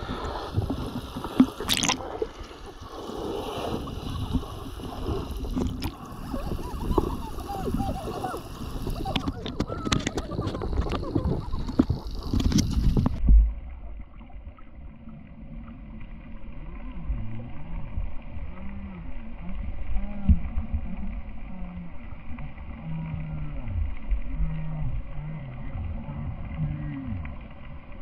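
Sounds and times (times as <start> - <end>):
loud water splash: 0.0 - 11.3
muffled underwater noise: 0.0 - 28.0
faint wavering low tones: 13.0 - 27.8.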